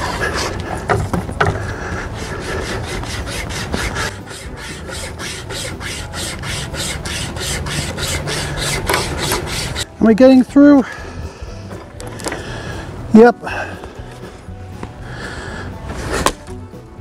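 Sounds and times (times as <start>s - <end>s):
wire saw rasping through wood: 0.0s - 10.0s.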